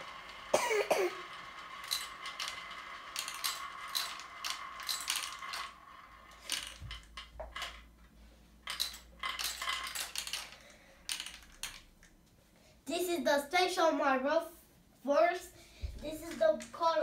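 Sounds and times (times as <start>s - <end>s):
marbles clattering down plastic run: 0.0s - 7.9s, 8.6s - 11.9s, 16.1s - 17.0s.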